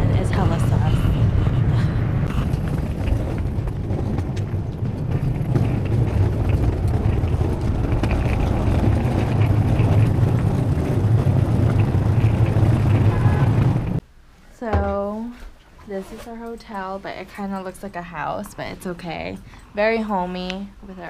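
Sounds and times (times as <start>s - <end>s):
passing traffic: 0.0s - 14.0s
wind on microphone: 0.0s - 14.0s.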